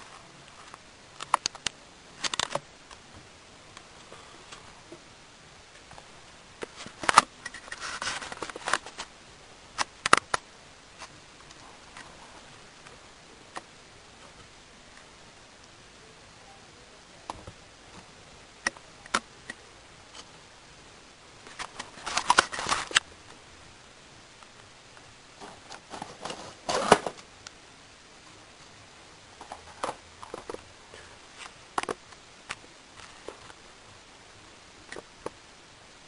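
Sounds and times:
rapid clicking and rustling: 21.4 - 23.0.

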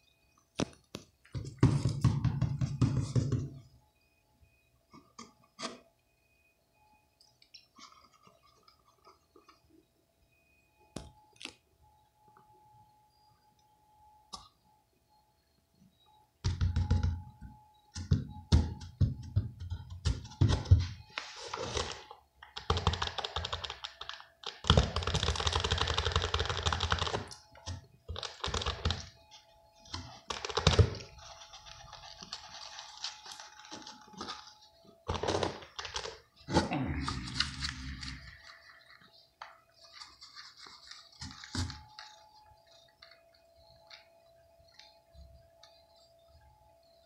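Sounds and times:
faint steady hum: 0.0 - 47.0
rustling and scratching on cardboard: 39.8 - 43.2.

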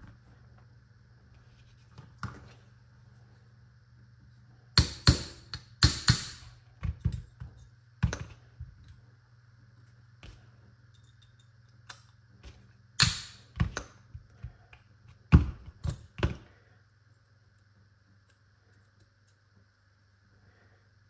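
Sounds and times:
hammer tapping metal punch: 4.8 - 7.2.

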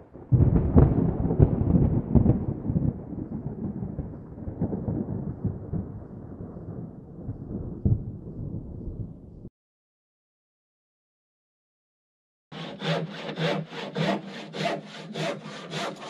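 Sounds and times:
thunder rumbling and cracking: 0.0 - 9.5.

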